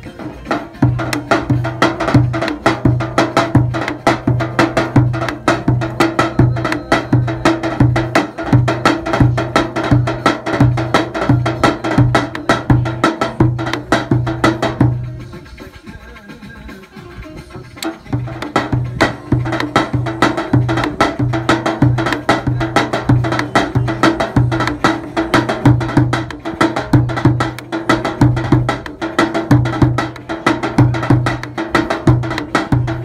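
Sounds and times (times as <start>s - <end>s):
light sharp drum strokes: 0.0s - 33.0s
deep drum booms: 18.2s - 33.0s.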